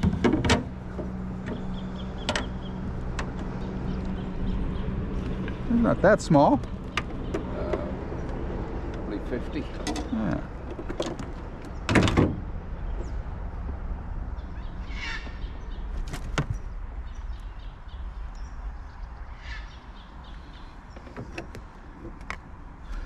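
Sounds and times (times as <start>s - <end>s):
knocks and scraping in boat: 0.0s - 5.6s, 6.6s - 9.0s, 9.6s - 12.4s, 20.9s - 23.0s
steady low rumble: 0.0s - 23.0s.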